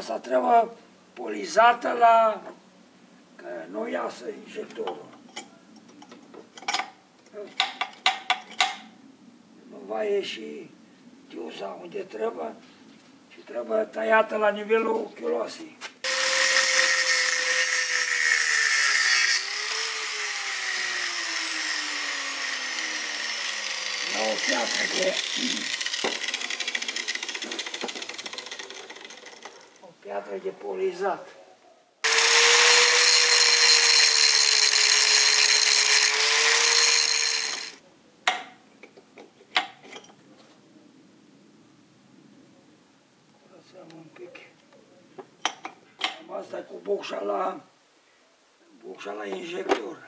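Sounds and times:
angle grinder grinding metal: 16.0s - 29.8s, 32.0s - 37.8s.

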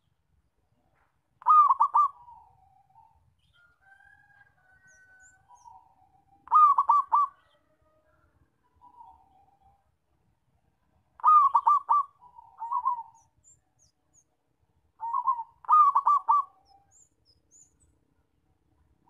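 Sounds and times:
dove cooing: 1.4s - 3.1s, 5.5s - 7.6s, 11.2s - 13.3s, 15.0s - 16.9s.

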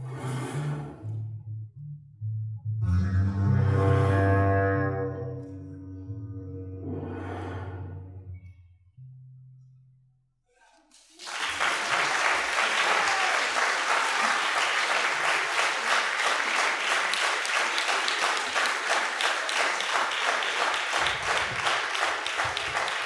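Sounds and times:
audience applauding: 10.7s - 23.0s.

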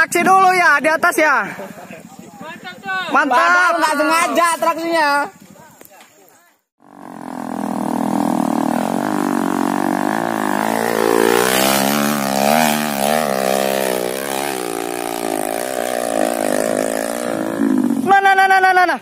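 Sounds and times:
dirt bike engine revving: 6.8s - 18.1s.

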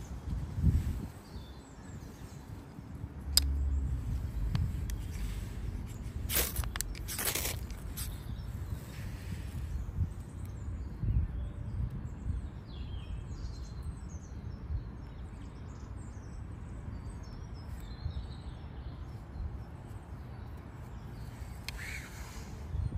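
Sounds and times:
steady low rumble: 0.0s - 12.5s
birds chirping: 0.0s - 22.9s.

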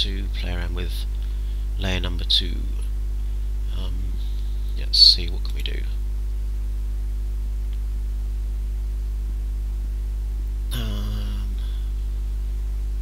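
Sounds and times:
electrical mains hum: 0.0s - 13.0s
short low voice: 10.7s - 12.0s.

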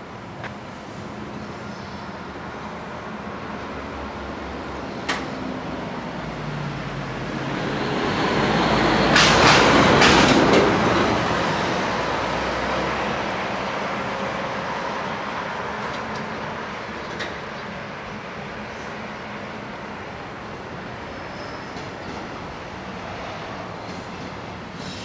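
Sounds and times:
train rumbling on rails: 0.0s - 25.0s
sharp rail clacks: 9.1s - 10.8s.

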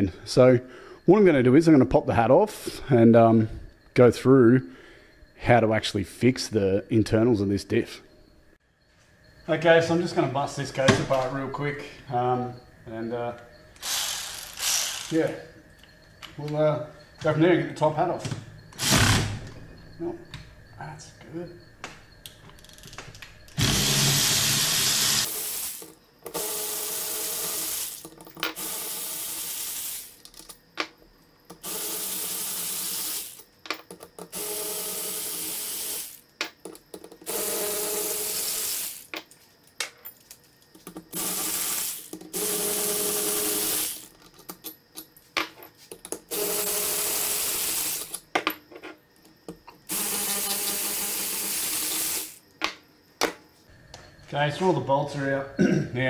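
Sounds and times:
cordless power tool bursts: 13.8s - 15.2s, 18.8s - 19.4s, 23.6s - 28.0s, 37.3s - 39.1s, 41.2s - 44.1s, 46.3s - 48.1s, 49.9s - 52.4s.

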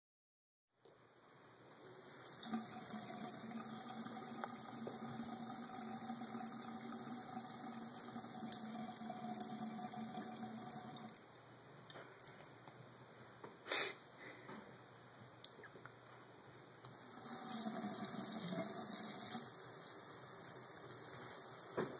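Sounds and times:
faucet water splashing into basin: 2.1s - 11.2s, 16.9s - 19.7s.

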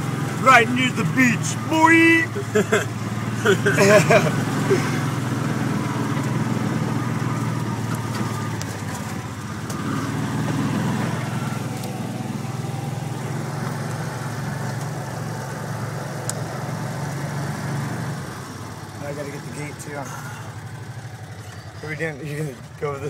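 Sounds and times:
vehicle engine running: 0.0s - 23.0s.

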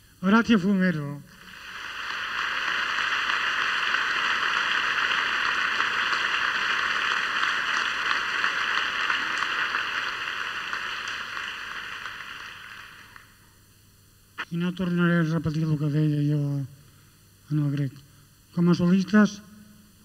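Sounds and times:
audience applauding: 1.4s - 13.4s.

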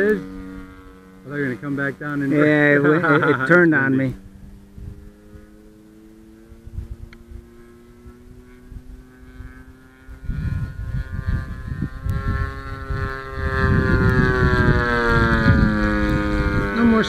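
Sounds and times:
model airplane engine droning: 0.0s - 17.0s
wind buffeting microphone: 4.1s - 5.6s, 6.5s - 17.0s.

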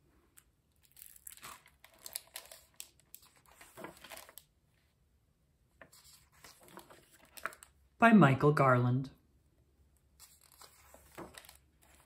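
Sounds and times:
book pages rustling and crinkling: 0.3s - 4.9s, 5.8s - 7.8s, 10.1s - 12.0s.

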